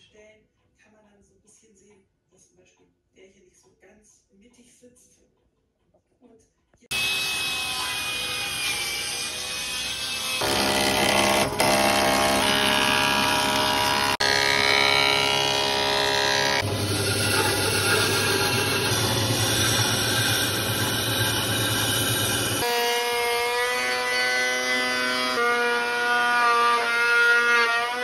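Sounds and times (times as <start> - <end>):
band saw cutting: 6.9 - 28.0
table saw ripping wood: 6.9 - 28.0
planer humming: 10.4 - 22.7.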